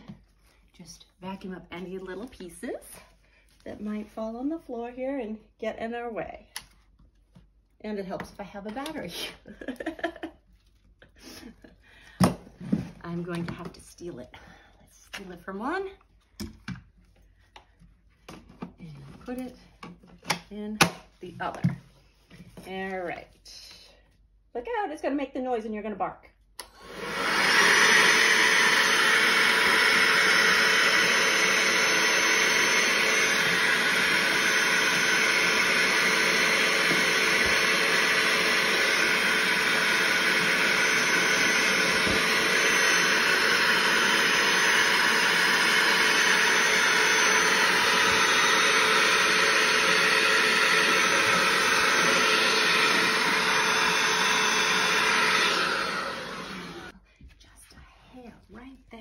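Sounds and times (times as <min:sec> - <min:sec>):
handheld vacuum running: 0:26.6 - 0:57.0.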